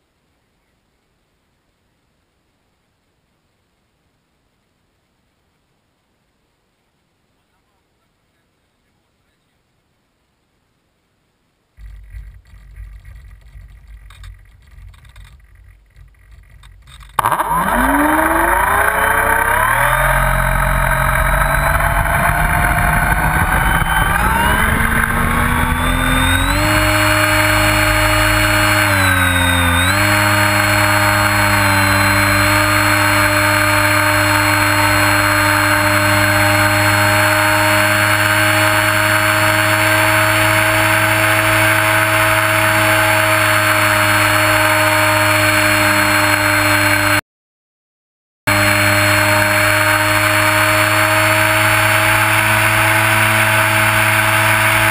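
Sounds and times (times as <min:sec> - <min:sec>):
model plane motor and propeller: 0:11.8 - 0:47.2, 0:48.5 - 0:54.9.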